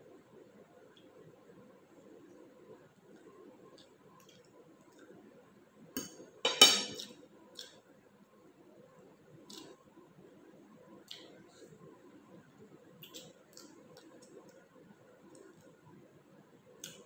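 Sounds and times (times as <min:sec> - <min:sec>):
metal fork clinking on plate: 0:06.0 - 0:07.1.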